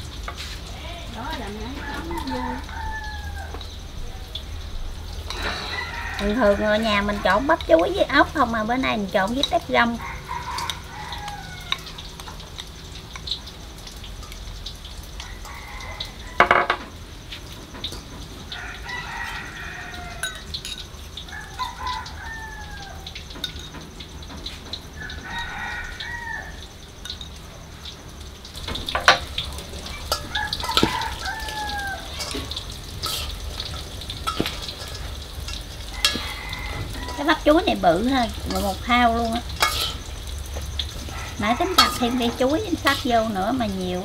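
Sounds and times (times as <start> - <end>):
rooster crowing: 1.2 - 4.4, 5.1 - 8.7, 9.8 - 12.3, 15.1 - 16.8, 18.4 - 23.7, 24.8 - 27.0, 28.6 - 44.0
utensils clinking on steel bowl: 5.2 - 8.4, 10.5 - 13.4, 20.1 - 21.0, 23.4 - 23.9, 28.6 - 44.0.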